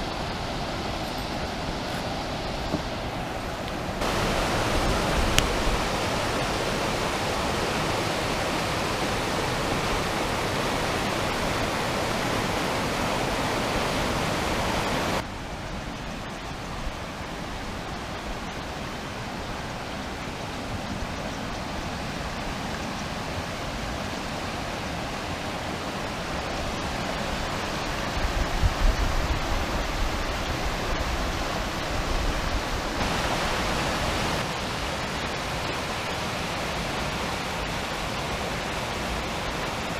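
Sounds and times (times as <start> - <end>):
water rushing over rocks: 0.0 - 39.9.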